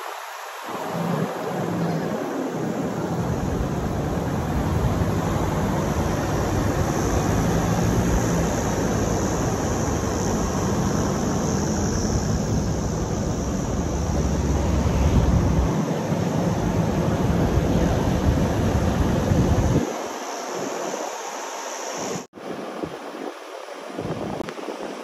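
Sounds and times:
wind rushing over microphone: 0.0 - 25.0
truck engine and tyres rumbling: 3.0 - 19.9.

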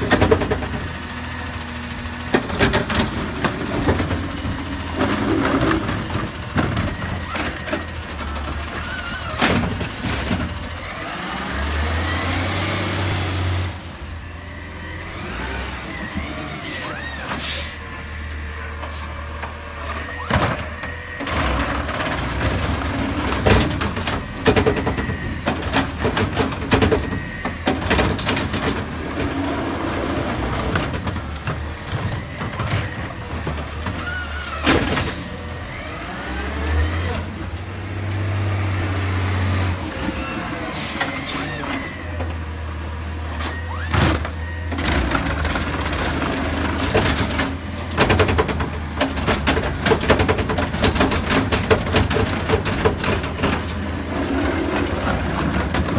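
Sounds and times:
garbage truck engine running: 0.0 - 55.9
gripper and plastic carts clanking: 2.2 - 10.7, 15.1 - 38.3, 43.3 - 55.9.

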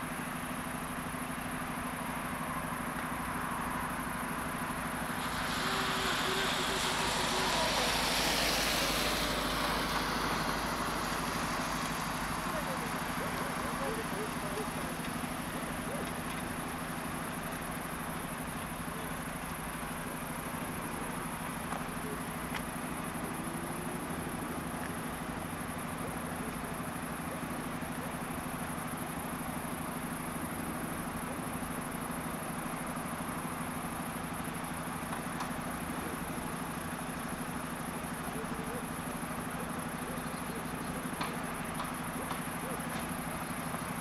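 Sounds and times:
distant vehicle rumble: 3.6 - 27.5, 35.0 - 44.0.

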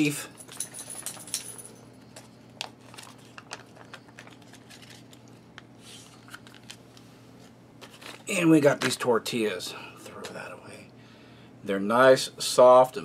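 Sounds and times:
foil pouch crinkling: 2.5 - 7.0, 7.8 - 9.1.

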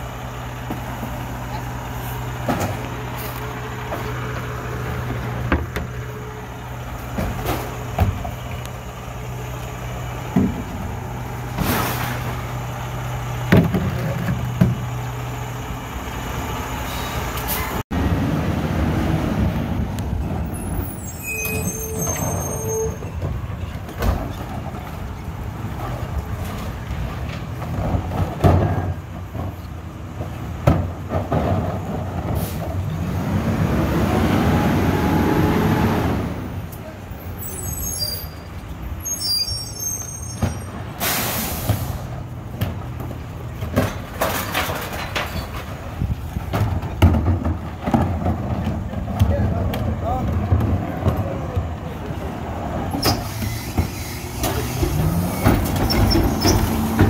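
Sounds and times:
diesel truck engine running: 0.0 - 21.1.

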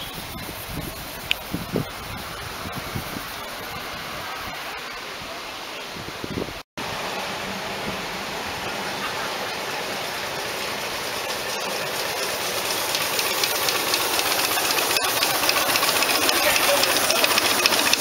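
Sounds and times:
steam hiss: 6.8 - 18.0
steam locomotive chuffing: 7.0 - 18.0.

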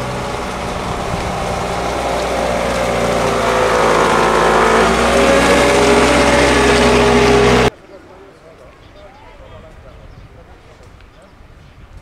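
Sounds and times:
loader engine running: 0.0 - 7.7.

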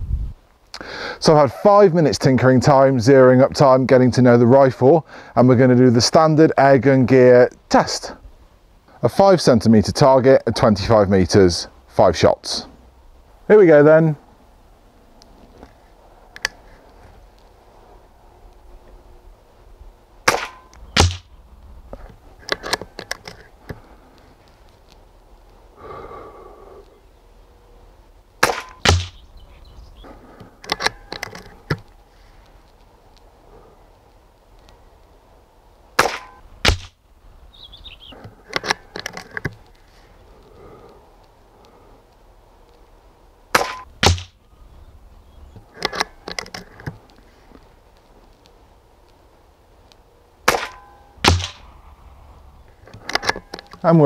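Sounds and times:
soft rustle: 14.2 - 20.2, 21.3 - 25.8, 29.1 - 37.5, 38.1 - 43.4, 44.3 - 50.2
air rifle shots: 20.2 - 21.4, 28.4 - 29.2, 36.0 - 37.0, 43.5 - 44.4, 50.4 - 51.8
deeper crack: 28.4 - 29.2, 50.5 - 52.1
rifle bolt metallic clicks: 30.6 - 31.9, 38.4 - 39.6, 45.6 - 47.0, 52.9 - 53.8.

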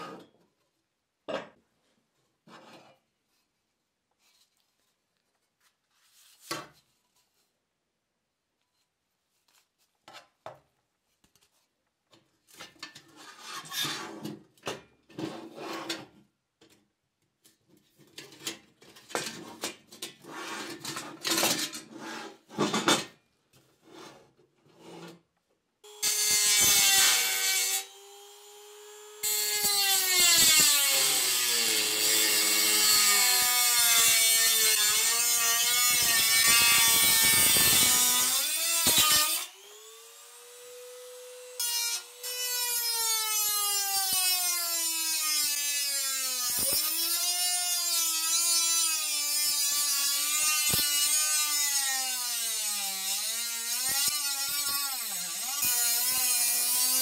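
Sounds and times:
rotary tool grinding metal: 25.9 - 57.0.

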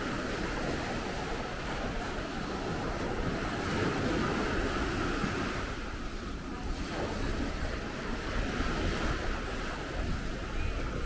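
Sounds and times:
sea waves washing on sand: 0.0 - 11.0
wind rumbling on microphone: 0.0 - 11.0.

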